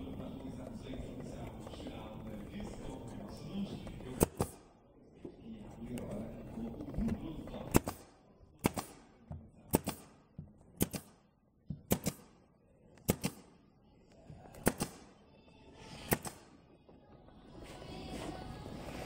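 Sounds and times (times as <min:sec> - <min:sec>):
nail gun firing into wood: 0:04.2 - 0:04.7, 0:07.7 - 0:13.6, 0:14.6 - 0:15.2, 0:16.1 - 0:16.6.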